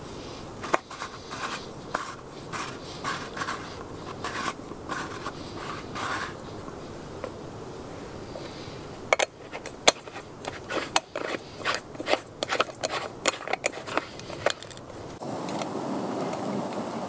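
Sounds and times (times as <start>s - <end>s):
steady noise: 0.0s - 17.0s
metal threads clicking and scraping: 9.1s - 15.2s.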